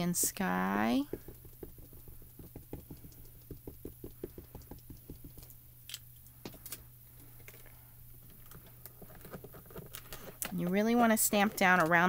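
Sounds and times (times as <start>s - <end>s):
ink pad tapping on stamp: 1.0s - 5.5s.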